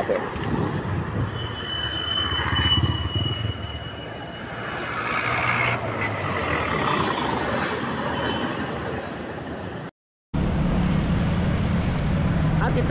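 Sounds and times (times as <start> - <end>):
vehicles passing: 0.0 - 12.9
heavy engines running: 10.4 - 12.9.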